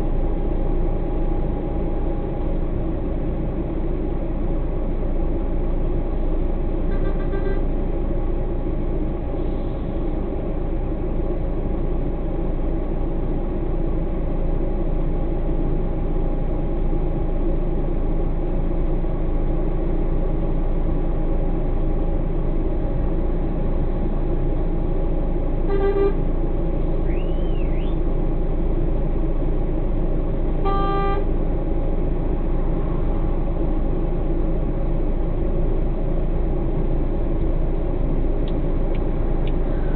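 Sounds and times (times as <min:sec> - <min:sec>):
diesel engine idling: 0:00.0 - 0:39.9
truck horn toots: 0:06.9 - 0:07.7, 0:25.7 - 0:26.3, 0:30.6 - 0:31.3.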